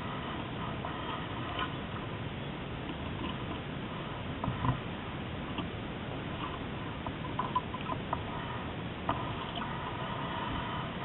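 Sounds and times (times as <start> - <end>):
wind and water rushing: 0.0 - 11.0
small clicks and squeaks: 0.8 - 1.9, 6.4 - 8.5, 9.1 - 10.6.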